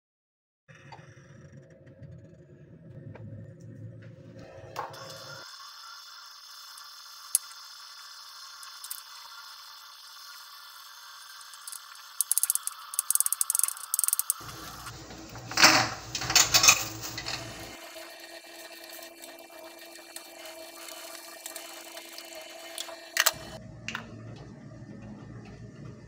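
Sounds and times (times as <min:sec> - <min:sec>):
utensils clattering on cookware: 0:11.6 - 0:17.8.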